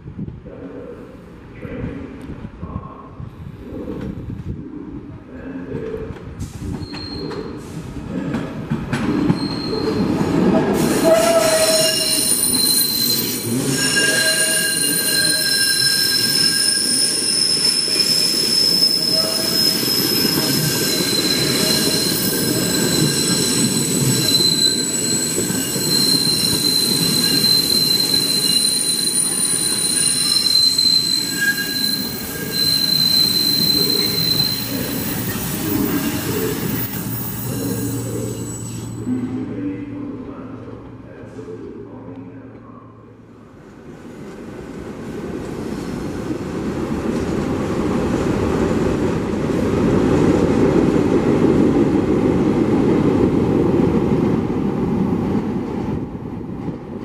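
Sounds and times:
train wheels rumbling on rail: 3.2 - 39.6, 43.3 - 57.0
train wheels squealing: 6.6 - 7.8, 9.0 - 39.1.

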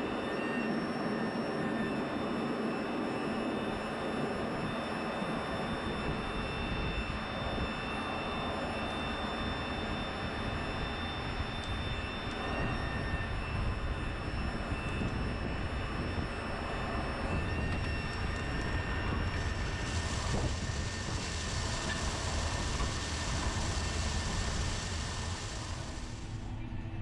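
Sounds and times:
steady high whines: 0.0 - 27.0
tractor engine drone: 0.0 - 27.0
bright hiss: 19.6 - 26.6.

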